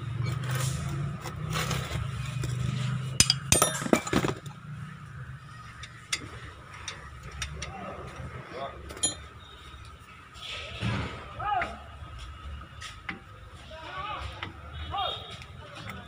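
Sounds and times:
metallic clinks and clatter: 8.9 - 9.3.

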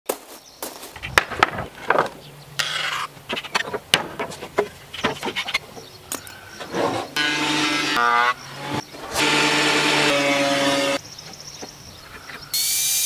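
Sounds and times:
wooden boards knocking and clattering: 1.1 - 2.2, 3.2 - 5.9
wood scraping rasp: 6.6 - 11.0.

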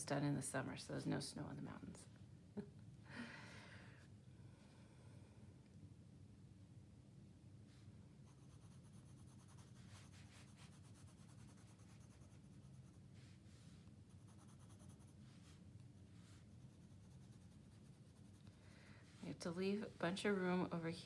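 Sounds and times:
pencil scratching on paper: 8.2 - 18.5.

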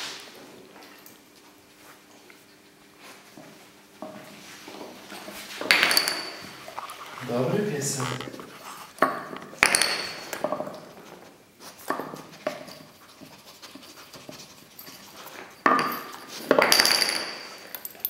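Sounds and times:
wooden pegs knocking on floor: 5.6 - 6.5, 8.0 - 10.8
dog sniffing and panting: 6.5 - 7.3, 8.3 - 9.0, 10.9 - 16.6.

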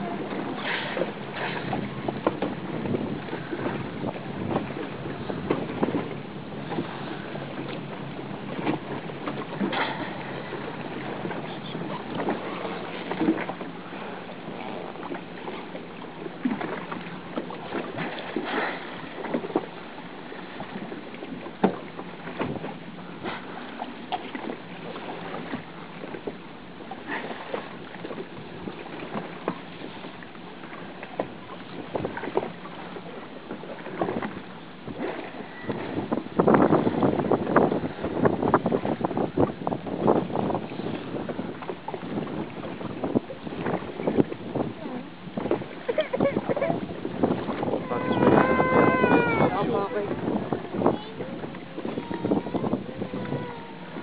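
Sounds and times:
water splashing against boat hull: 0.0 - 54.0
wind buffeting microphone: 0.0 - 54.0.

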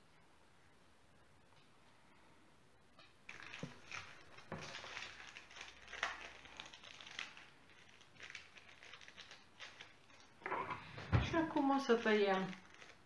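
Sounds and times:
paper crinkling and rustling: 3.3 - 13.0.

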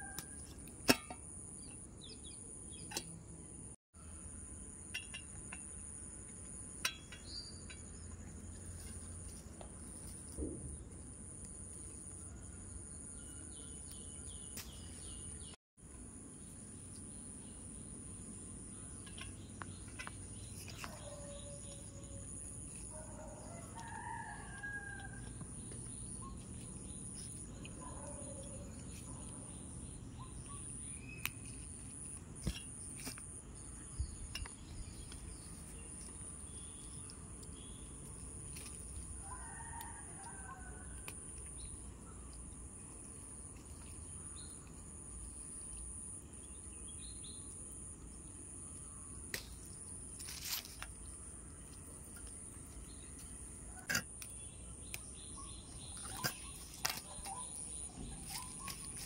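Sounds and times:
rooster crowing: 23.2 - 25.4, 39.2 - 41.0.

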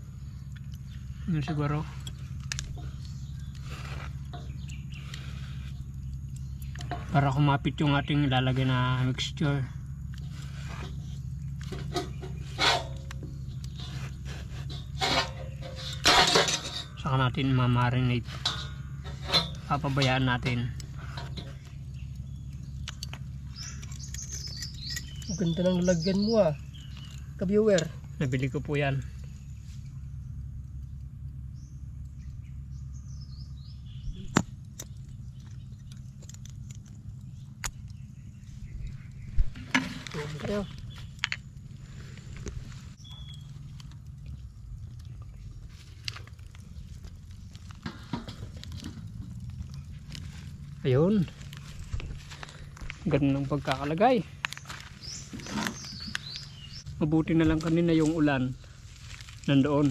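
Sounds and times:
faint bird chirps: 0.0 - 14.3, 20.6 - 42.3, 42.9 - 45.8, 49.7 - 57.0
low steady rumble: 0.0 - 59.9
steady low hum: 0.0 - 59.9.

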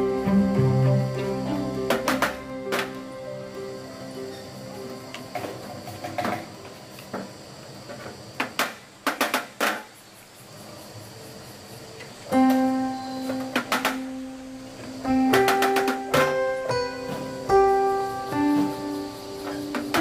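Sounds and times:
plucked guitar music: 0.0 - 5.6, 12.3 - 20.0
sharp knocks: 1.8 - 3.0, 8.0 - 9.9, 12.4 - 14.2, 15.0 - 17.5, 19.4 - 20.0.

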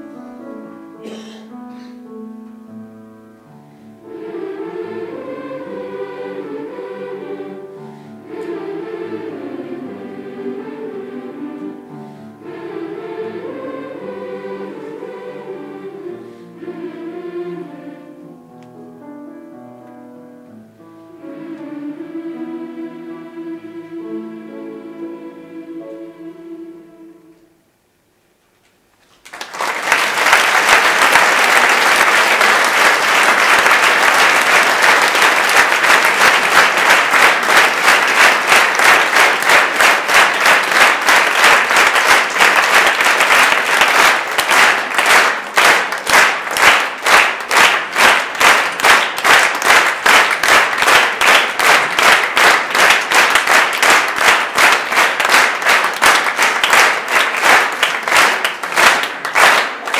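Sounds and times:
audience applauding: 29.0 - 59.9
rhythmic clapping in unison: 29.2 - 59.9.

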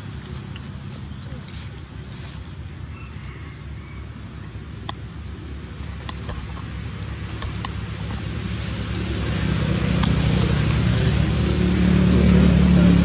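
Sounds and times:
vehicle engine approaching: 5.5 - 13.0.

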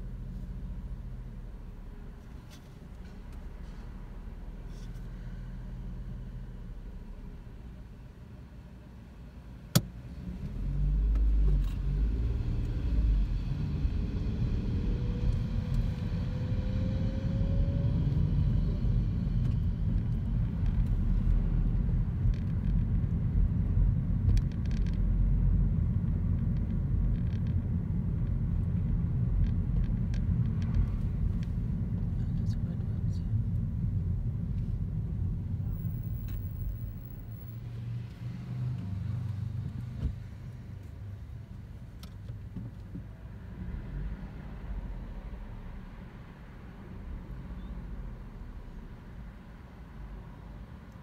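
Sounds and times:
tyre road noise: 0.0 - 51.0
car engine accelerating: 10.0 - 40.6.

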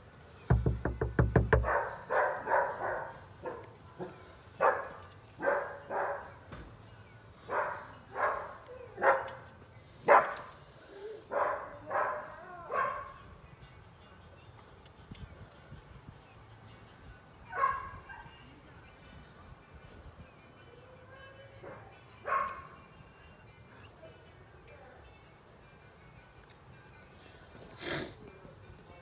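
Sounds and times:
knocks on a door: 0.5 - 1.8
dog barking: 1.6 - 6.4, 7.5 - 9.4, 10.1 - 10.5, 11.3 - 13.2, 17.5 - 18.3, 21.6 - 22.7.

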